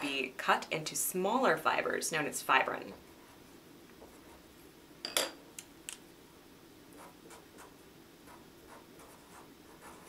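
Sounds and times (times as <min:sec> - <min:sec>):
marker writing on paper: 0:07.0 - 0:10.0.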